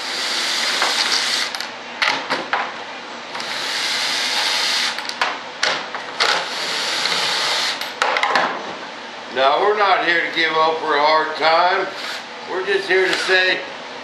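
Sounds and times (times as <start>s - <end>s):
cordless drill running: 0.0s - 1.7s, 3.4s - 5.1s, 6.2s - 7.8s, 12.0s - 12.2s, 13.1s - 13.5s
drill clicks: 13.1s - 13.4s.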